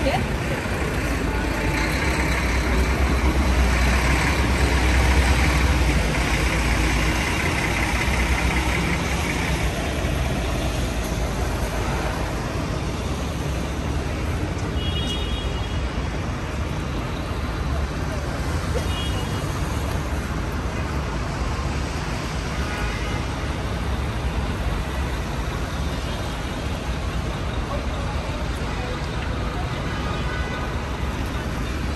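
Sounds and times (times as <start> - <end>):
tyres hissing on wet road: 0.0 - 15.1.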